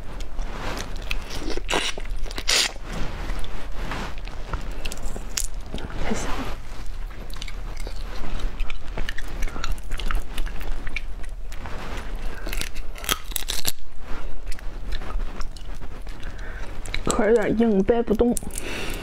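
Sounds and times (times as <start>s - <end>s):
chewing: 0.1s - 19.0s
shells cracking and peeling: 7.2s - 17.6s, 18.2s - 19.0s.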